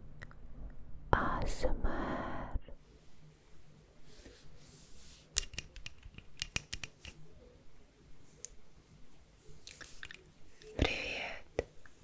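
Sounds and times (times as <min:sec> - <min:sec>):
sharp crisp clicks: 0:05.4 - 0:07.2.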